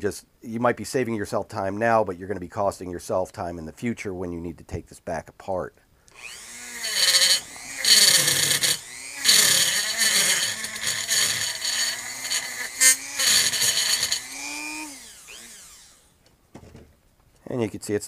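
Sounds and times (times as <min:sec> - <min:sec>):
rotary tool motor whine: 0:06.2 - 0:16.2
wire wheel scraping metal: 0:07.0 - 0:14.3.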